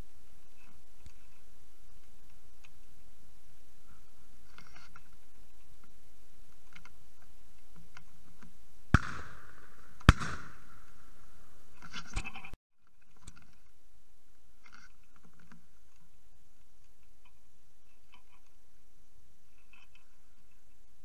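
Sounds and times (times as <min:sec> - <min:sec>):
shotgun shots with echo: 0:08.9 - 0:11.4.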